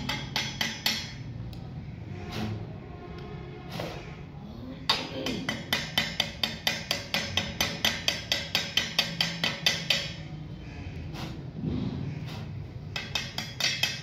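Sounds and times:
hammer strikes on steel: 0.0 - 1.2, 4.9 - 10.3, 12.3 - 14.0.

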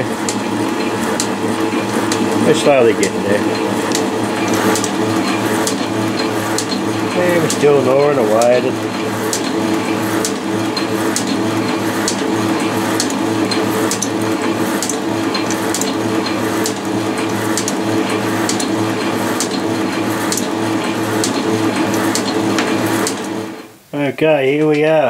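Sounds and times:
metal shaper running: 0.0 - 23.7
machine tick: 6.5 - 6.8, 9.3 - 9.5, 10.2 - 10.4, 11.1 - 11.3, 12.0 - 12.2, 13.0 - 13.2, 13.9 - 14.1, 14.8 - 15.9, 16.6 - 17.8, 18.4 - 18.7, 19.4 - 19.6, 20.3 - 20.5.

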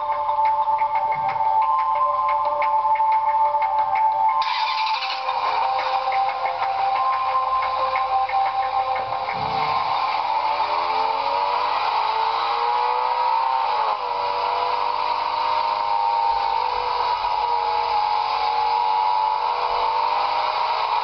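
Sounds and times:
car engine accelerating hard: 4.3 - 21.0.

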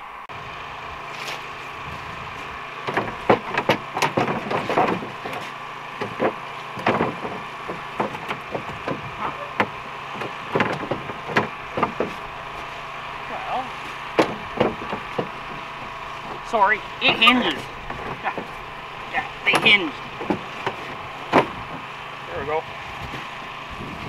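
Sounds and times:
steady hum: 0.0 - 24.0
snowmobile hood knocking and rattling: 2.8 - 12.3, 14.1 - 18.6, 19.4 - 21.9.

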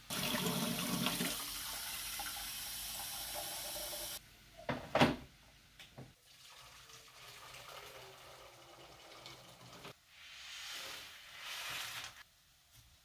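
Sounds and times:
tap water running into kettle: 0.1 - 4.2, 6.3 - 9.9.

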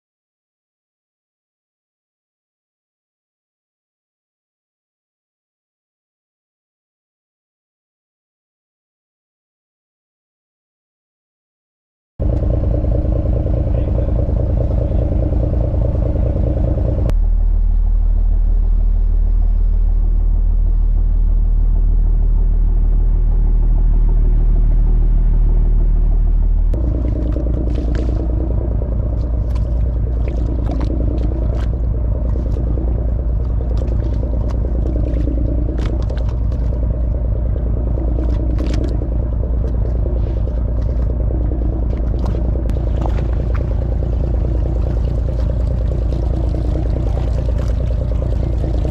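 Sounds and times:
boat engine droning: 12.2 - 48.9.

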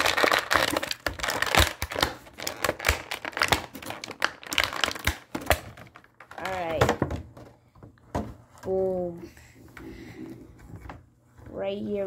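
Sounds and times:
plastic packaging crackling: 0.0 - 6.9.

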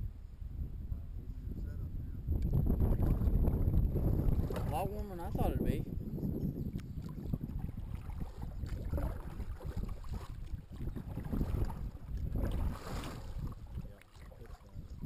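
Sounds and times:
wind rumble on microphone: 0.0 - 15.0
paddle strokes splashing water: 2.9 - 5.2, 6.7 - 15.0.

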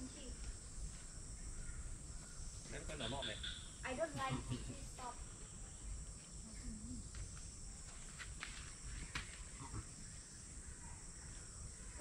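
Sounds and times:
high-pitched insect drone: 0.0 - 7.9.

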